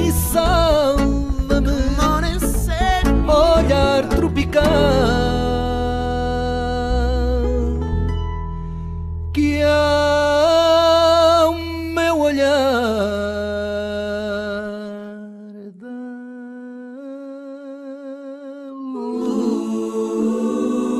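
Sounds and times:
person singing long notes with vibrato: 0:00.0 - 0:07.6, 0:13.7 - 0:20.9
low musical backing: 0:00.0 - 0:11.5
several voices singing together: 0:18.9 - 0:20.9.

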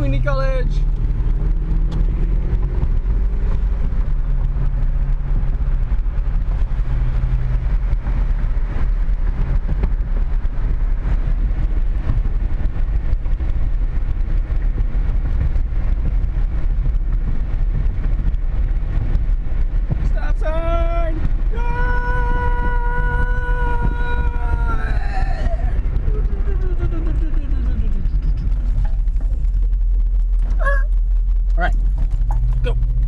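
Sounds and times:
car interior road rumble: 0:00.0 - 0:33.0.

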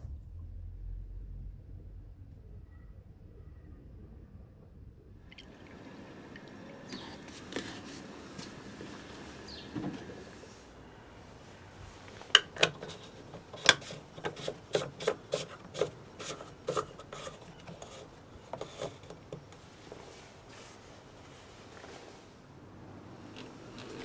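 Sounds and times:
plastic cap screwing clicks: 0:12.4 - 0:18.0.

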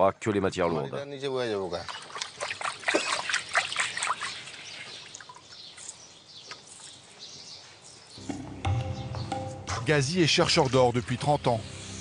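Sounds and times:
hands splashing water in basin: 0:01.7 - 0:05.6.

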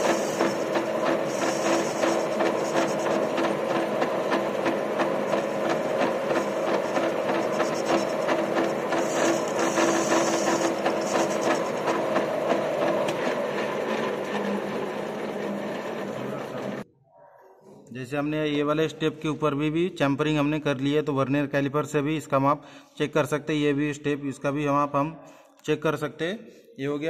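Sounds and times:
lathe humming: 0:00.0 - 0:16.8.

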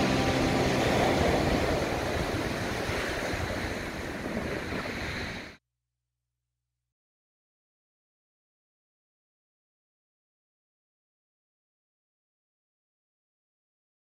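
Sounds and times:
sea waves breaking on beach: 0:00.0 - 0:05.6
wind on microphone: 0:00.0 - 0:05.6.

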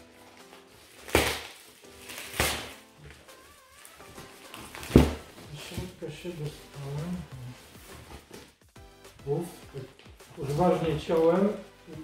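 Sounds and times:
knife slitting plastic packaging: 0:00.6 - 0:02.8.

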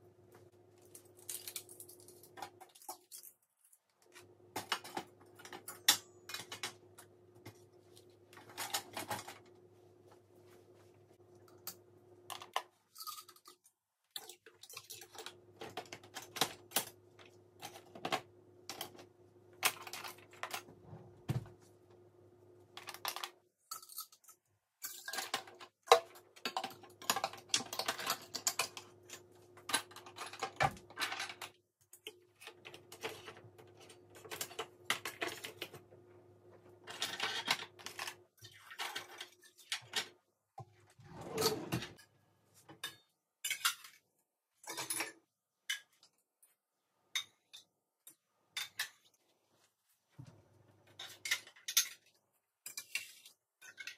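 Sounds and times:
dishes and utensils clattering: 0:42.7 - 0:44.0, 0:44.6 - 0:46.0, 0:50.9 - 0:53.9.

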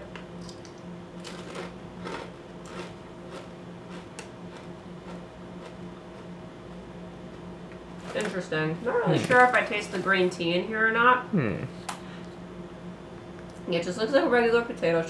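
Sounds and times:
steady low hum: 0:00.0 - 0:15.0
potato chip crunching while chewed: 0:00.4 - 0:06.3.

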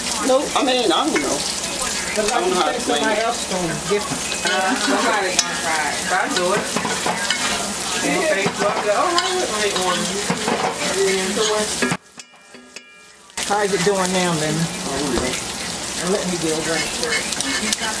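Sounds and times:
food sizzling in oil: 0:00.0 - 0:18.0
fork scraping a pan: 0:02.2 - 0:13.2, 0:16.6 - 0:18.0.

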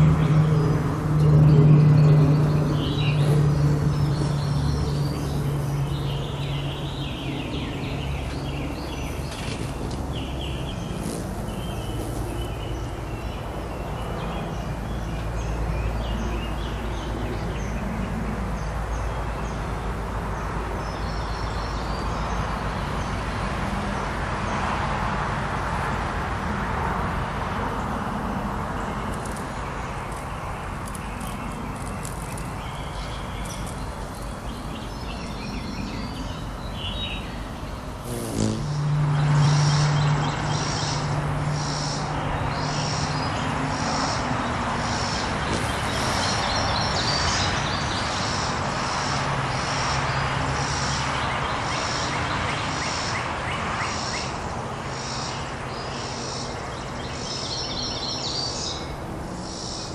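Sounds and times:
small birds chirping: 0:00.0 - 0:23.2, 0:28.7 - 0:48.6
passing vehicle rushing: 0:38.0 - 0:52.0.

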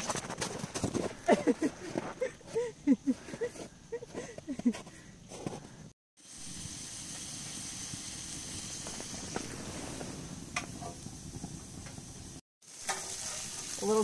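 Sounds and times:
patties sizzling on a griddle: 0:06.2 - 0:14.0.

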